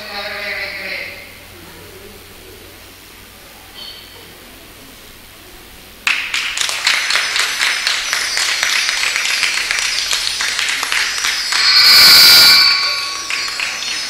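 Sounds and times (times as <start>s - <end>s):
audience clapping: 6.0s - 11.7s, 13.3s - 14.0s
steady high tones: 7.8s - 14.0s.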